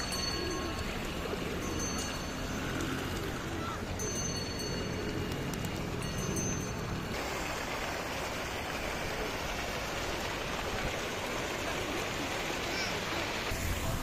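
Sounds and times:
fountain water splashing: 0.0 - 14.0.

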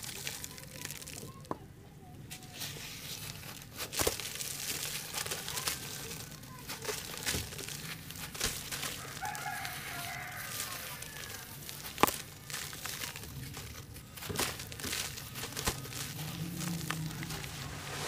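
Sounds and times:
hands crunching wet chunks: 0.0 - 1.6, 2.5 - 17.7
chicken calling: 8.9 - 11.8.

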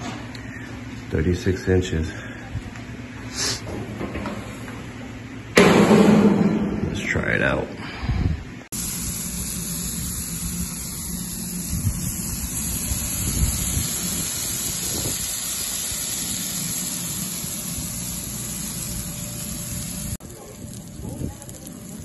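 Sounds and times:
meat sizzling on a griddle: 8.7 - 22.0.

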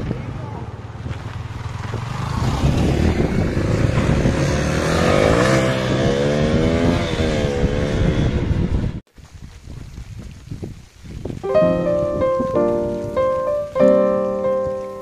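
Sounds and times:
motorcycles accelerating: 0.1 - 9.0.

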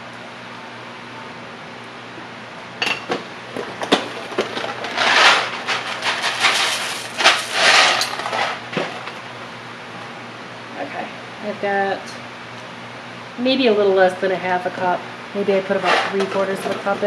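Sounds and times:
dry pasta rattling into pot: 4.0 - 8.6.

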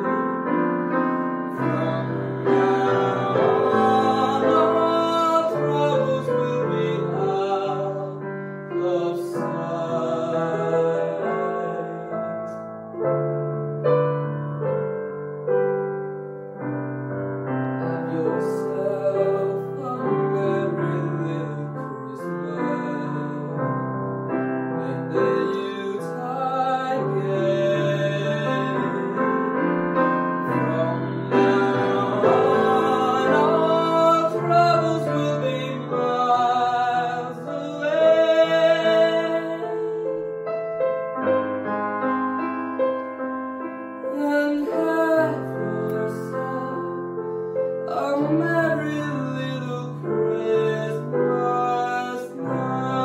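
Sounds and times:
man singing: 0.0 - 12.6, 17.7 - 41.0, 44.0 - 53.0.

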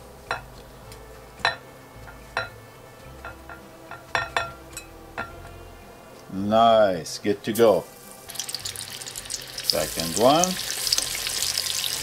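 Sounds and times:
clinks against glass bowl: 3.2 - 5.5.

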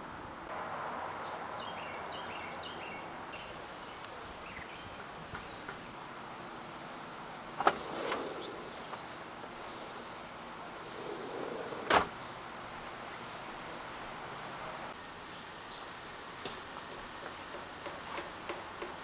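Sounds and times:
small birds chirping: 1.2 - 6.1, 14.9 - 18.3.

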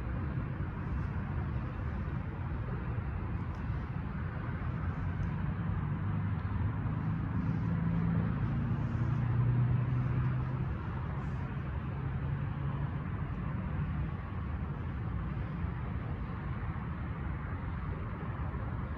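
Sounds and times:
vehicle engine rumble: 0.0 - 18.9.

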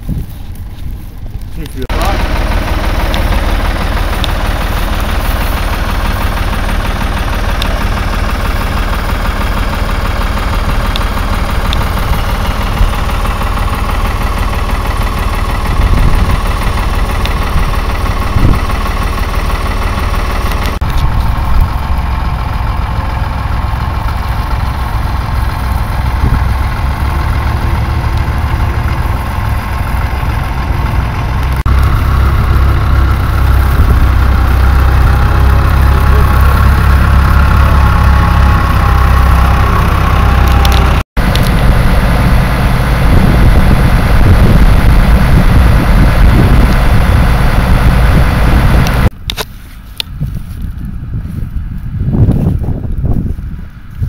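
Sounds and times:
tractor engine running under load: 0.0 - 54.0.

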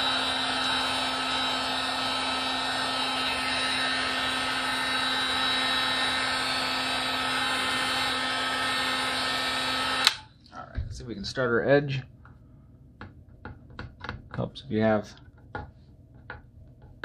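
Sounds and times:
heat gun fan whining: 0.0 - 10.3.

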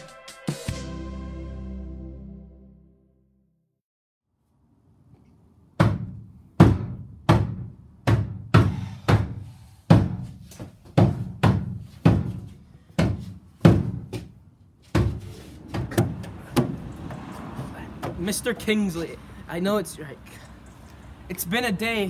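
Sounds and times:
hand banging on van doors: 5.8 - 18.4.

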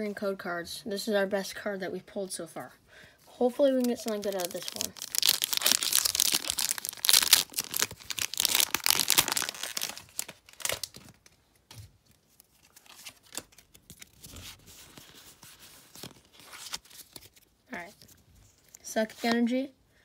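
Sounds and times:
foil wrapper tearing and crinkling: 3.7 - 11.2.

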